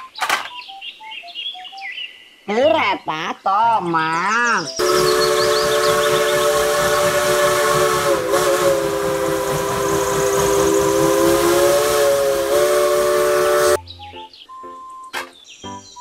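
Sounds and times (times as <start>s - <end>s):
steam hissing: 4.8s - 13.8s
steam locomotive whistle: 4.8s - 13.8s.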